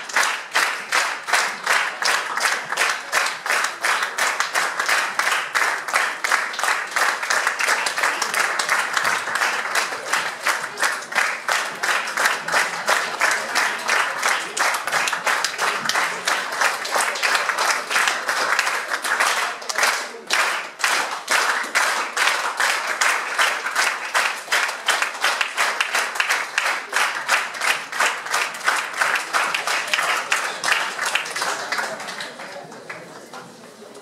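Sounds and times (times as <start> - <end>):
audience applauding in rhythm: 0.0 - 33.6.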